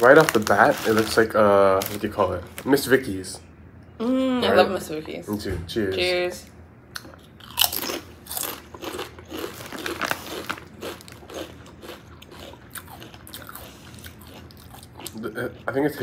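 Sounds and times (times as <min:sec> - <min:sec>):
people crunching potato chips: 0:00.0 - 0:02.8, 0:07.0 - 0:15.8.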